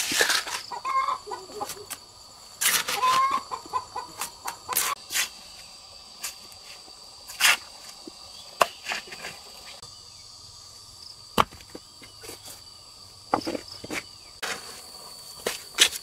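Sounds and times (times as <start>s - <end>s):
knocks and thuds of hand work: 11.4s - 11.8s.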